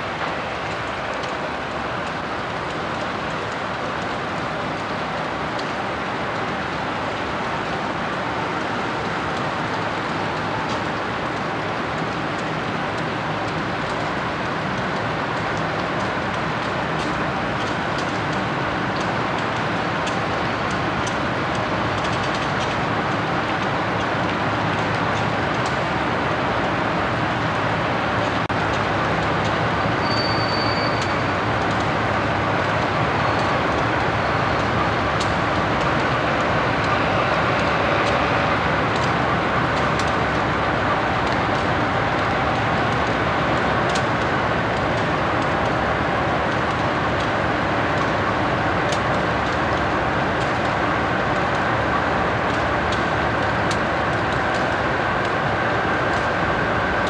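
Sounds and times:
diesel locomotive engine running: 0.0s - 57.0s
rail noise: 0.0s - 57.0s
faint clicks: 43.9s - 45.8s.

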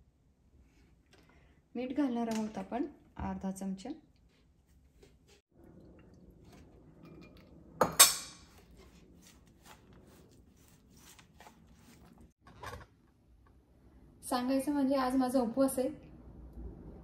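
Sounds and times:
hands scraping stuffing in plate: 8.5s - 12.4s.

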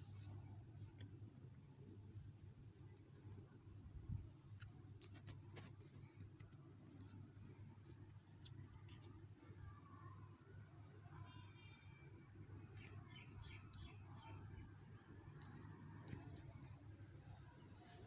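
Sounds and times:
faint low hum: 0.0s - 18.0s.

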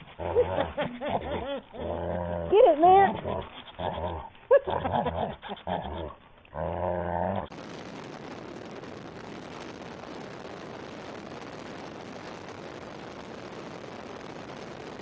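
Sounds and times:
dog growling: 0.0s - 7.5s
wind rushing over microphone: 7.5s - 15.0s.

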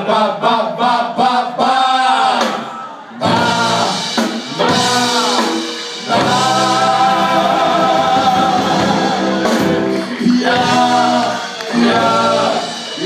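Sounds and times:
men singing: 0.0s - 2.6s, 3.2s - 13.0s
drums: 1.4s - 13.0s
electric guitar: 3.2s - 13.0s.

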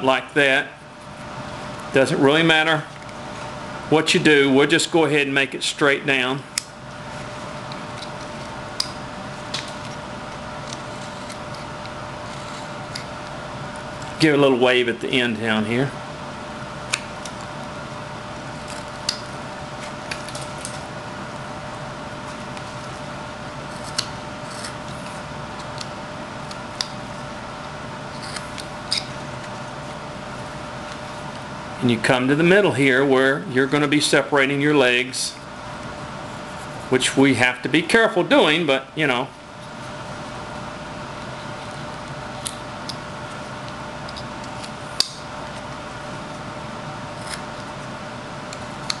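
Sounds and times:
steady background hum: 0.0s - 49.0s
knife cutting wood: 7.2s - 13.3s, 23.6s - 27.0s, 28.1s - 29.9s, 47.1s - 47.8s.

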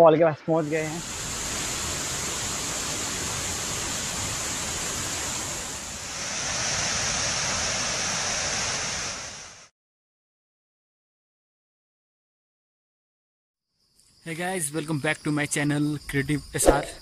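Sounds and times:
waterfall rushing: 0.6s - 9.5s.

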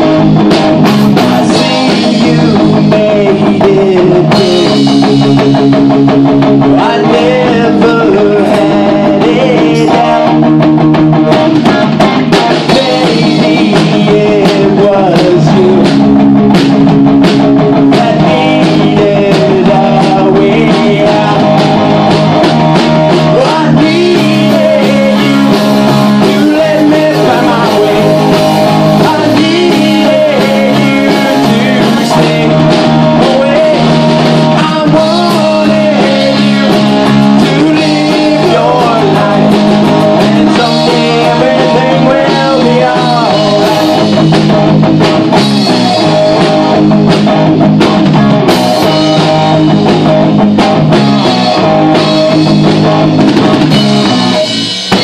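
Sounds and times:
rock band playing live: 0.0s - 55.0s
person singing: 1.3s - 5.5s, 6.6s - 10.6s, 12.5s - 16.2s, 17.8s - 22.0s, 23.2s - 44.2s.

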